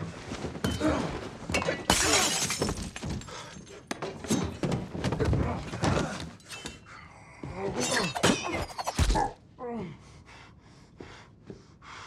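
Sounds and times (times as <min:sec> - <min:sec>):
glass smashing: 0:01.6 - 0:03.3, 0:07.8 - 0:09.2.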